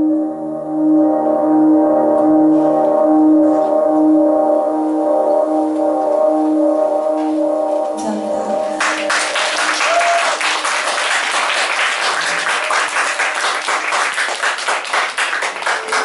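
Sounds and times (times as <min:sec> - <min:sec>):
sustained keyboard chord: 0:00.0 - 0:09.4
audience applause: 0:08.8 - 0:16.0.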